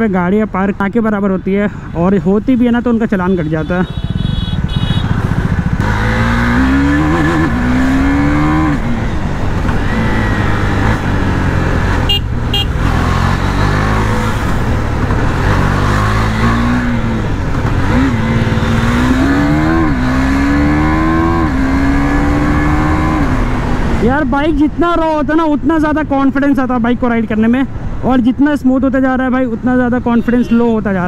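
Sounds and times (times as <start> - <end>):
motorcycle engine accelerating: 4.1 - 24.0.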